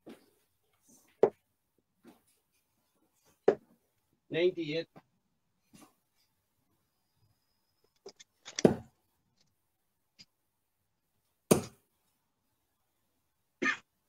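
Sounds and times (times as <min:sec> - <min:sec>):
darts thudding into dartboard: 0:08.5 - 0:08.9, 0:11.5 - 0:11.8.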